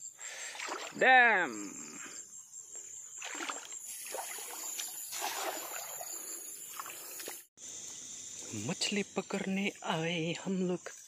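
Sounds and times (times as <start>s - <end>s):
crickets chirring: 0.0s - 11.0s
light splashing in shallow water: 0.4s - 1.0s, 3.2s - 7.5s.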